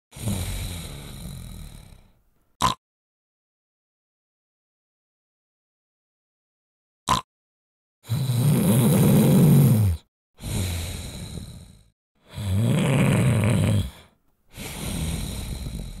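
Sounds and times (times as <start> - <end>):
person snoring heavily: 0.1 - 2.8, 8.0 - 16.0
quiet breath: 0.2 - 2.3, 10.4 - 11.9, 13.8 - 16.0.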